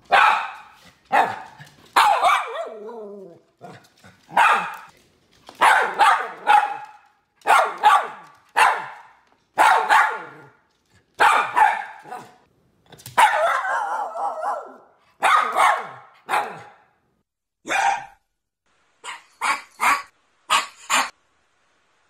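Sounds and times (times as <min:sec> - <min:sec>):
dog barking: 0:00.1 - 0:03.0, 0:03.6 - 0:04.9, 0:05.6 - 0:10.6, 0:11.2 - 0:12.4, 0:13.2 - 0:16.9, 0:17.6 - 0:18.2.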